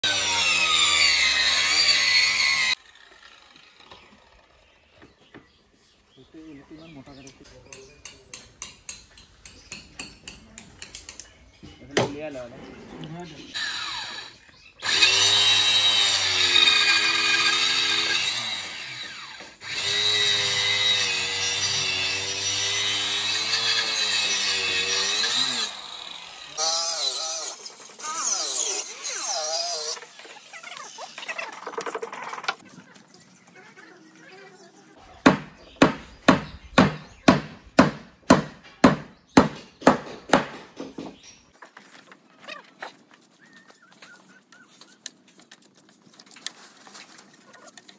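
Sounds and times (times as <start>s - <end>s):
hammer striking wood: 35.2s - 41.2s.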